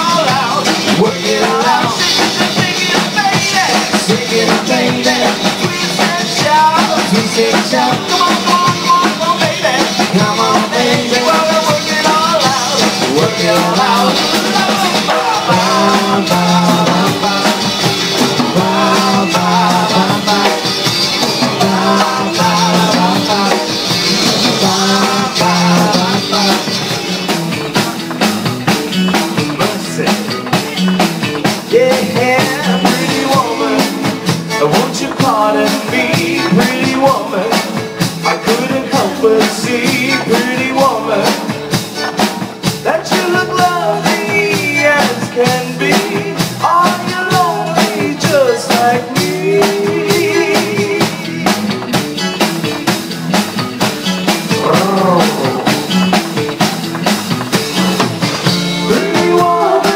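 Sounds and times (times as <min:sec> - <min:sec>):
drum kit beat: 0:00.0 - 0:59.9
live band playing: 0:00.0 - 0:59.9.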